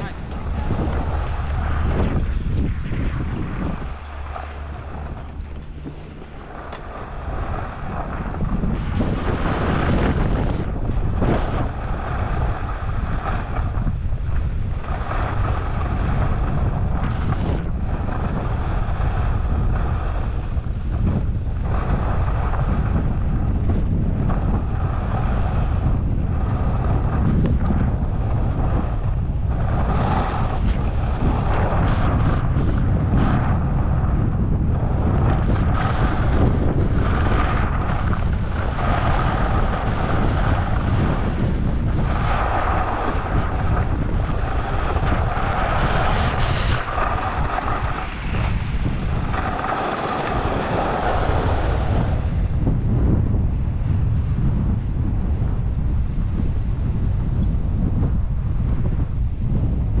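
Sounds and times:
skis scraping packed snow: 0.0s - 20.6s, 23.8s - 33.7s, 35.0s - 52.5s
wind buffeting microphone: 0.0s - 60.0s.

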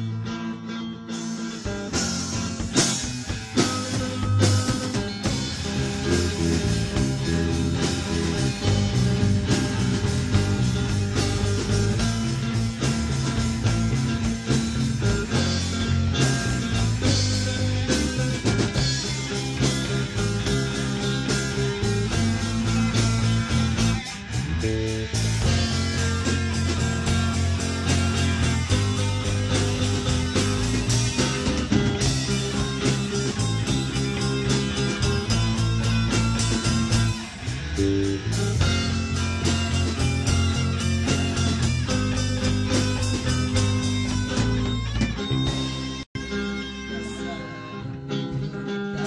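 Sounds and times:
rock band jamming: 0.0s - 49.0s.

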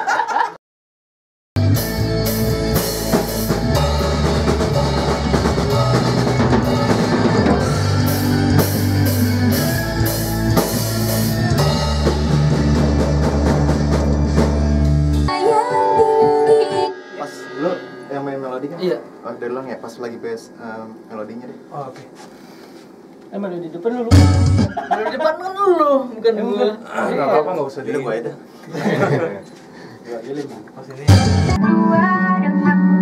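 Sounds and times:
rock band playing: 1.6s - 19.2s, 24.1s - 24.8s, 31.1s - 33.0s.

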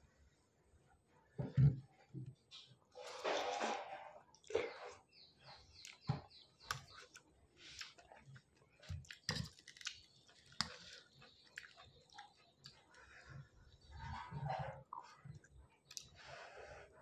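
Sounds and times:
person chewing and slurping noodles: 6.6s - 13.6s.

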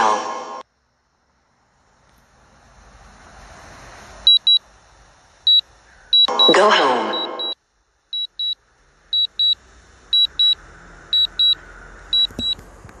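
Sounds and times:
high beeping alarm: 4.3s - 4.6s, 6.2s - 7.6s, 8.2s - 8.6s, 9.2s - 9.6s, 10.2s - 10.6s, 11.2s - 12.6s.

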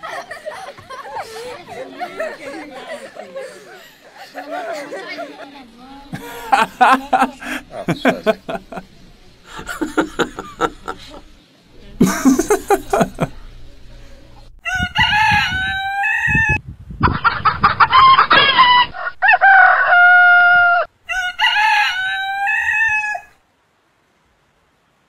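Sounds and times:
rooster crowing: 6.2s - 8.9s, 9.5s - 11.2s, 14.6s - 16.6s, 17.9s - 23.4s.

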